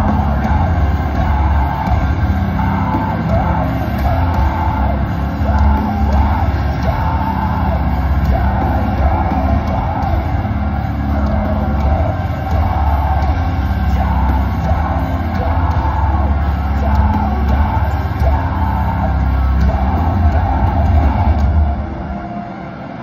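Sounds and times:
person singing: 0:00.0 - 0:22.6
live metal band playing: 0:00.0 - 0:23.0.

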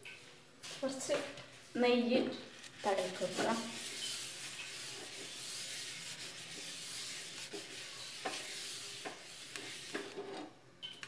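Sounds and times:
cloth wiping pan: 0:02.5 - 0:10.2.

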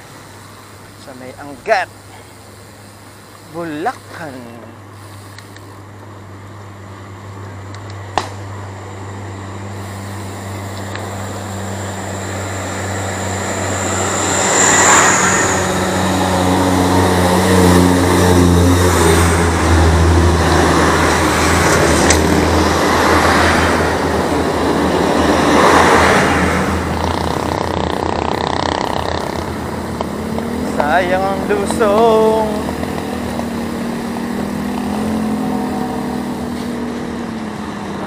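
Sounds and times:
truck engine passing: 0:06.3 - 0:38.0
wind rushing over microphone: 0:10.5 - 0:38.0.

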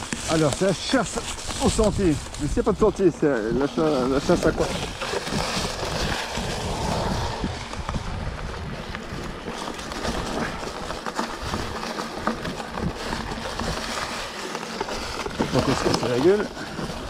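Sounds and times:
bike tyres rustling over leaves: 0:00.0 - 0:17.0
twigs crackling under tyres: 0:00.0 - 0:17.0
low rumble: 0:06.1 - 0:09.0.

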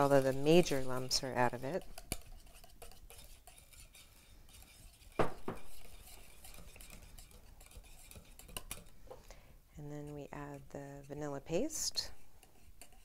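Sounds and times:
wire whisk beating in glass bowl: 0:00.0 - 0:08.9
louder knocks: 0:05.2 - 0:05.6.

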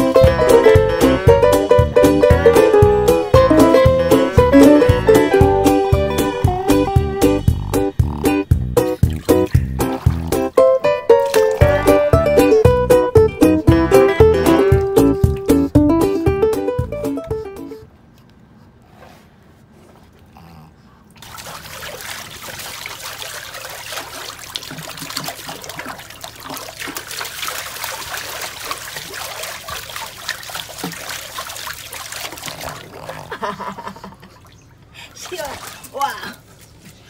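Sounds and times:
water lapping: 0:06.3 - 0:10.6, 0:19.7 - 0:37.0
pool water splashing: 0:08.8 - 0:16.0, 0:21.1 - 0:37.0.

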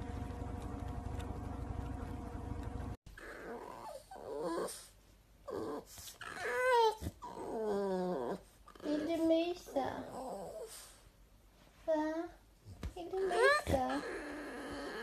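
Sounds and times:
dog whining and grumbling: 0:03.1 - 0:10.9, 0:13.1 - 0:15.0.

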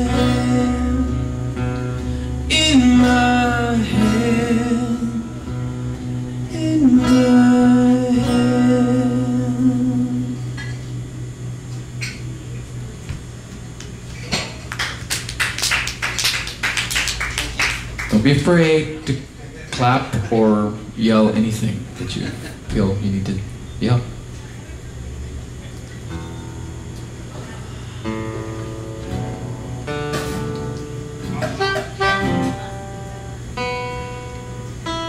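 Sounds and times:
man singing long wordless notes: 0:00.0 - 0:05.6, 0:06.3 - 0:10.5
acoustic guitars playing: 0:00.0 - 0:14.3, 0:25.7 - 0:35.0
small audience clapping: 0:13.8 - 0:18.8.

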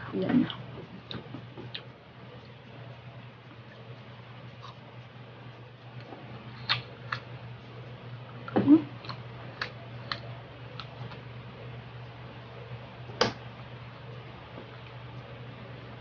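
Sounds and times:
steady low hum: 0:00.0 - 0:16.0
chewing mouth clicks and smacks: 0:06.6 - 0:07.3.

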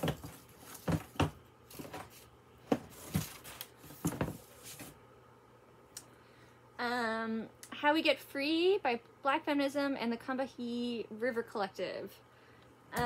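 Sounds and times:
books and packaging knocks and rustles: 0:00.0 - 0:05.0.

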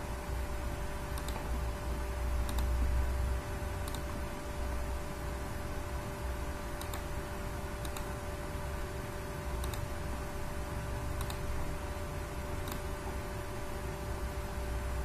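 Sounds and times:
background hum and hiss: 0:00.0 - 0:15.0
computer mouse clicking: 0:01.1 - 0:01.5, 0:02.4 - 0:02.8, 0:03.8 - 0:04.2, 0:06.8 - 0:07.2, 0:07.8 - 0:08.2, 0:09.6 - 0:09.9, 0:11.2 - 0:11.6, 0:12.6 - 0:12.9.

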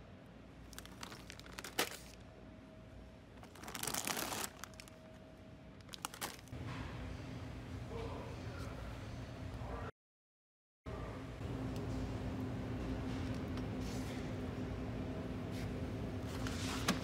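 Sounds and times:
foil snack bags crinkling: 0:00.7 - 0:02.2, 0:03.4 - 0:05.0, 0:05.8 - 0:06.5
bags dropping into plastic basket: 0:00.8 - 0:02.2.

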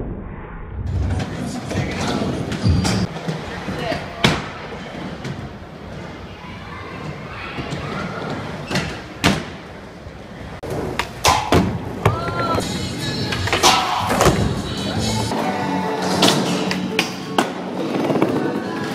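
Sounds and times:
skateboard wheels rolling: 0:00.9 - 0:18.9
background music: 0:12.1 - 0:18.9.

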